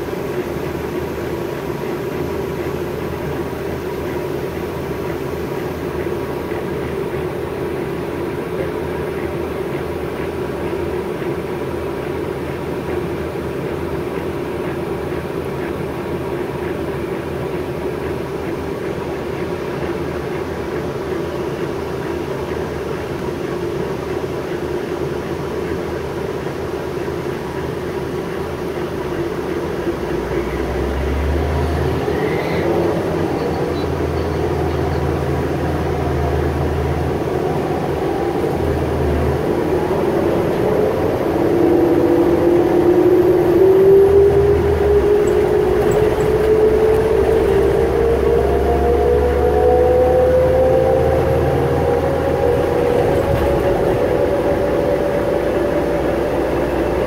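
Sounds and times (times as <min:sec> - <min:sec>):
bus engine idling: 0:00.0 - 0:57.0.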